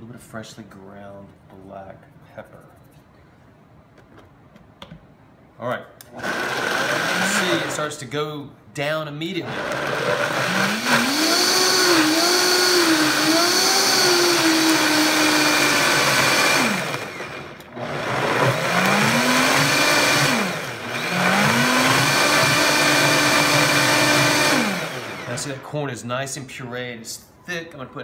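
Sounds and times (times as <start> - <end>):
blender motor whining: 6.1 - 7.9, 9.4 - 25.6.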